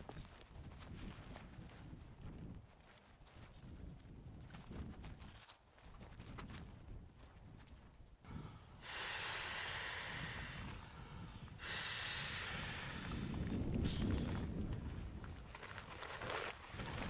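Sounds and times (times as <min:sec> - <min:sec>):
breath blown into valve: 0:08.3 - 0:14.3.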